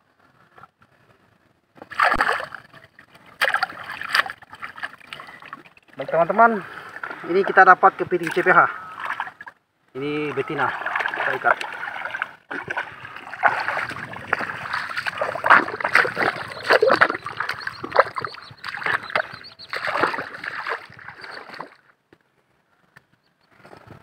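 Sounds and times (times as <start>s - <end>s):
footsteps squelching through mud: 3.2s - 6.1s, 10.4s - 21.8s.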